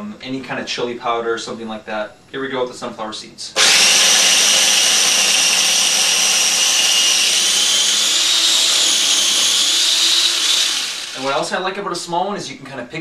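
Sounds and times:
food processor motor whine: 3.6 - 11.4.

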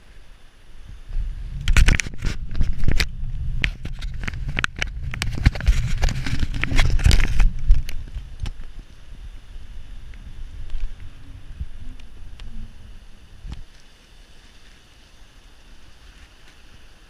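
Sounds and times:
wind rumbling on microphone: 0.0 - 17.0
bike rattling over bumps: 1.6 - 13.7.

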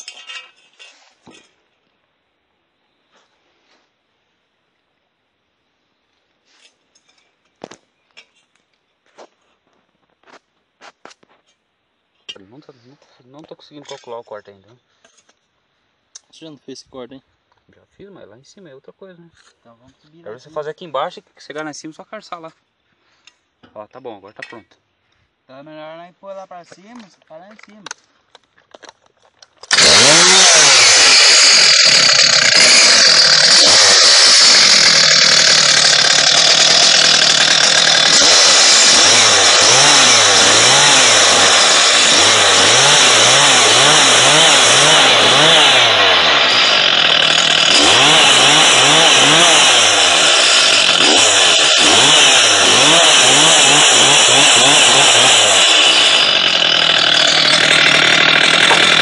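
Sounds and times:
chainsaw cutting wood: 29.6 - 59.0.

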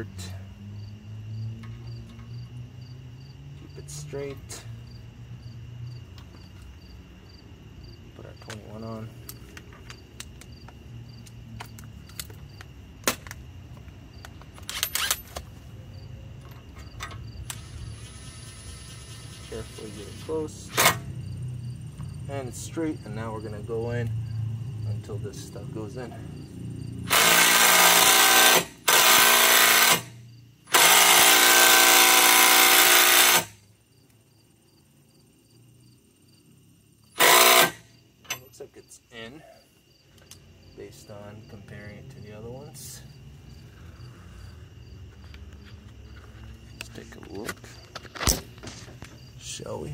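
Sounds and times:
impact wrench bursts: 17.4 - 21.1, 27.0 - 33.6, 37.1 - 37.9.

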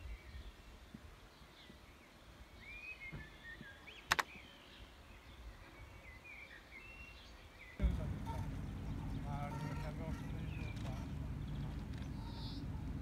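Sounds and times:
birds chirping and whistling: 2.6 - 13.0
low outdoor rumble: 7.8 - 13.0.

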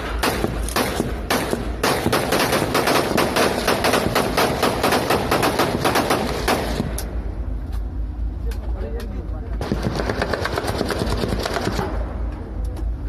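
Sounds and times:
rifles firing in a volley: 0.0 - 7.0, 9.6 - 12.1.

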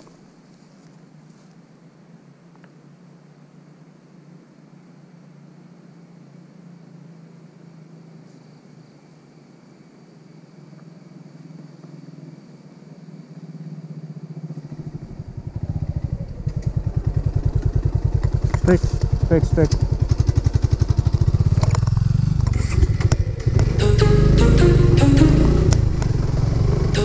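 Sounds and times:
motorcycle engine idling: 13.8 - 27.0.

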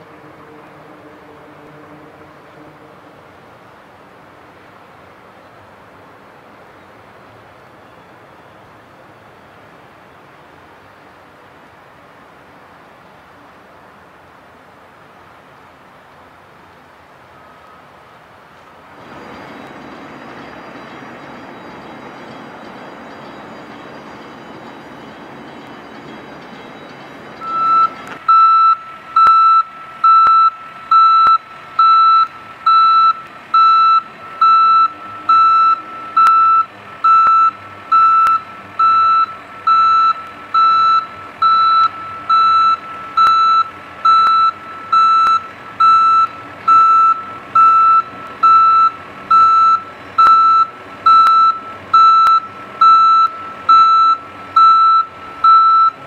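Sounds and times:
loader engine running: 18.7 - 56.0
backup alarm beeping: 19.4 - 56.0.

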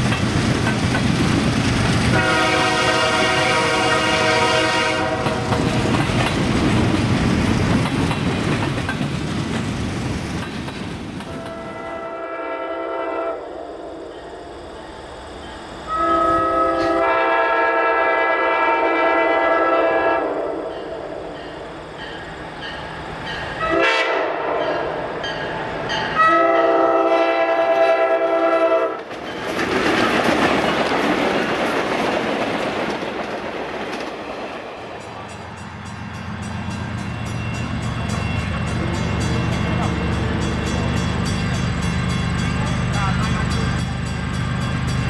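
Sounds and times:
wheels rushing on rails: 0.0 - 12.2, 27.1 - 45.0
locomotive air horn: 2.1 - 5.6, 11.3 - 13.9, 15.9 - 20.7, 23.6 - 24.7, 26.2 - 29.0.

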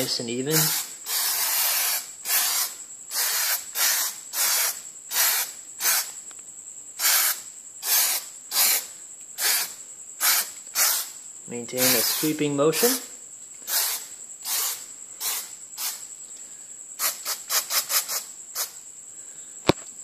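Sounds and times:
aerosol spray hissing bursts: 0.0 - 6.2, 7.0 - 16.1, 17.0 - 18.8.

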